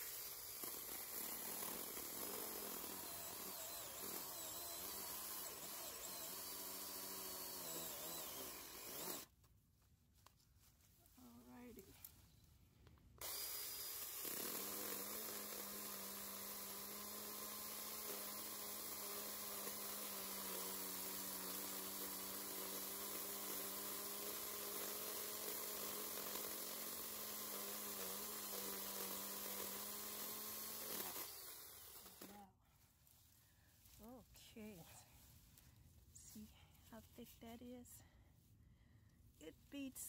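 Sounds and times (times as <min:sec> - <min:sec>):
chainsaw chain cutting wood: 0:00.0 - 0:09.3, 0:13.2 - 0:32.4
electric motor hum: 0:00.0 - 0:09.3.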